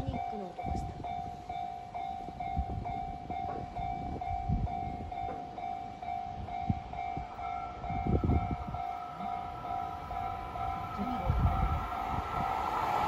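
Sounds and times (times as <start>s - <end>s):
level-crossing bell clanging: 0.0s - 13.0s
higher steady tone: 5.7s - 13.0s
low rumble: 7.3s - 13.0s.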